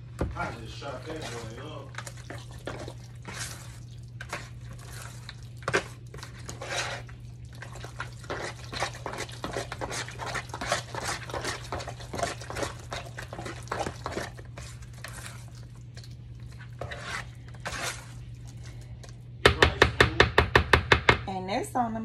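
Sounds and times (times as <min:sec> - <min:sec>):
wet squelching stirring: 0:00.0 - 0:21.0
utensil scraping plastic bowl: 0:00.4 - 0:15.6, 0:16.5 - 0:18.2.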